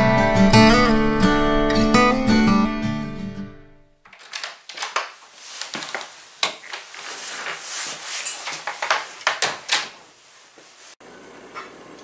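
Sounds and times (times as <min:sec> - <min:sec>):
rustling: 0:04.0 - 0:11.0
scattered clicks and knocks: 0:04.1 - 0:06.8, 0:08.5 - 0:09.9.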